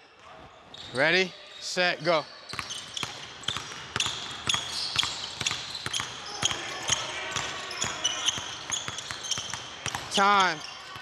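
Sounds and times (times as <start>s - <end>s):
sneaker squeaks: 0.4s - 11.0s
basketballs bouncing on wood floor: 2.5s - 11.0s.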